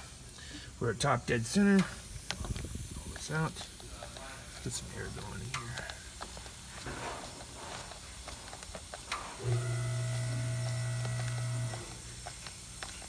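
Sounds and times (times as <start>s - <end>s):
compressed air hissing: 0.0s - 13.0s
steady low hum: 9.2s - 13.0s.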